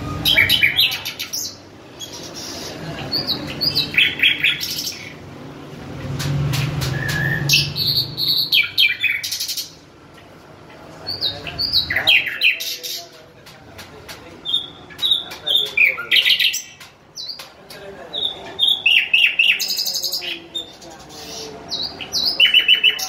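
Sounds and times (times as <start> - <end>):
sharp bird clicking notes: 6.0 - 7.8
bird singing whistled phrases: 6.9 - 9.5.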